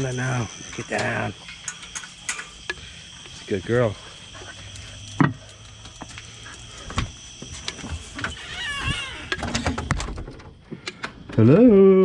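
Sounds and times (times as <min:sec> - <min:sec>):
insect chirring: 0:00.0 - 0:12.0
door squeaking: 0:07.9 - 0:10.3.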